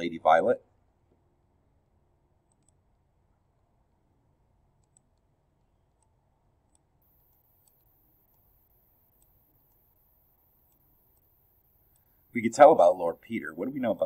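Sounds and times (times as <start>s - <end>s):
computer mouse clicks: 2.5s - 2.8s, 4.8s - 5.3s, 6.7s - 12.3s.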